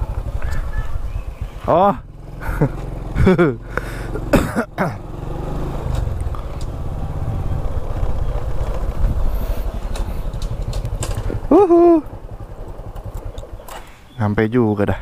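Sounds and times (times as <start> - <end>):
scooter engine drone: 0.0 - 14.4
person coughing or grunting: 4.0 - 5.1.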